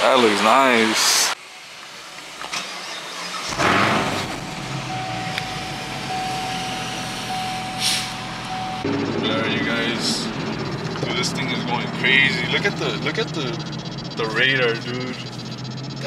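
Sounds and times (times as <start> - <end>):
car engine starting and idling: 1.4 - 16.0
steady electronic tone: 4.0 - 16.0.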